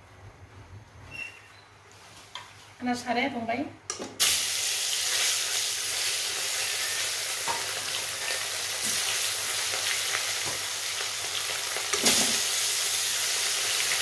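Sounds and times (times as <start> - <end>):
fish sizzling in hot oil: 4.2 - 14.0.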